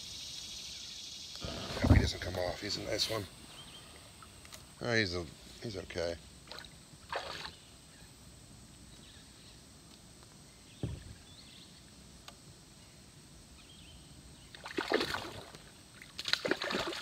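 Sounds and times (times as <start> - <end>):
dull knock on kayak hull: 10.8 - 11.2
fish splashing in water: 14.6 - 17.0.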